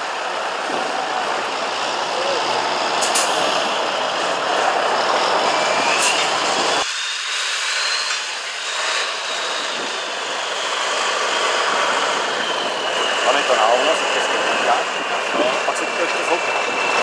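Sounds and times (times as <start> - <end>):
truck engine under load: 0.0 - 6.8.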